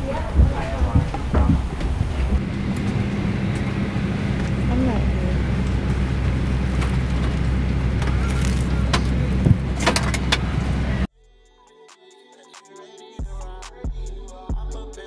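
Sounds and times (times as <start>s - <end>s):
jet engine drone: 1.8s - 11.1s.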